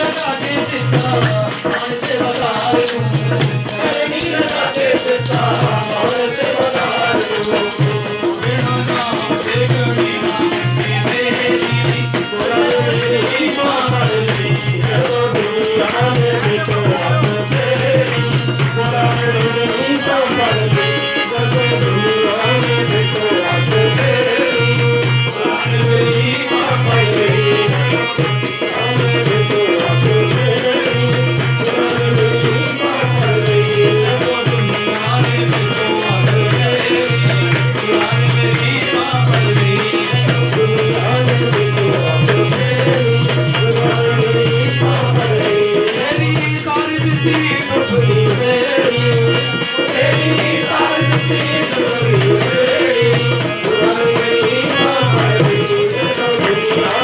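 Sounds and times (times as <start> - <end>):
group singing: 0.0 - 57.0
harmonium: 0.0 - 57.0.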